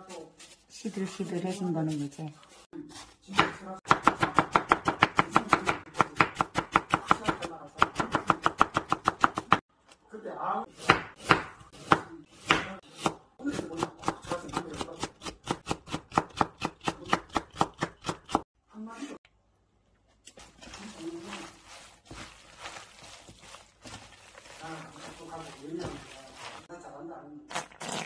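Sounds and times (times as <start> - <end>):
knife chopping on wooden board: 3.3 - 9.6, 10.7 - 18.4.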